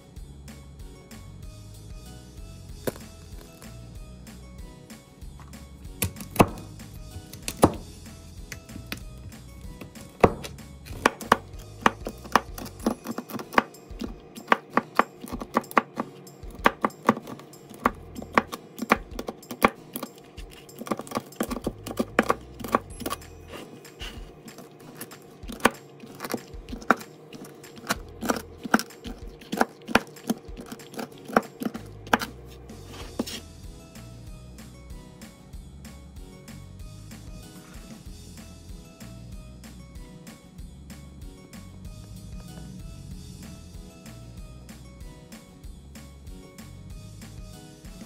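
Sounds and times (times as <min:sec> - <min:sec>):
background music: 0:00.0 - 0:48.0
knife chopping on cutting board: 0:02.8 - 0:03.1, 0:06.0 - 0:07.8, 0:08.5 - 0:33.4.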